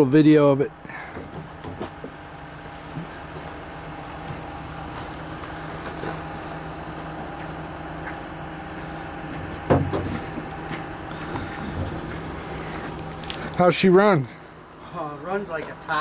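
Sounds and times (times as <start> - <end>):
truck engine idling: 0.0 - 16.0
loud knock: 9.7 - 10.2.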